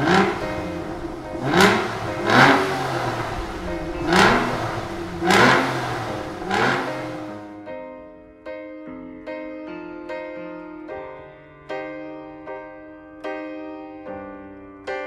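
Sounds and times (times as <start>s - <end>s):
car engine revving: 0.0s - 7.6s.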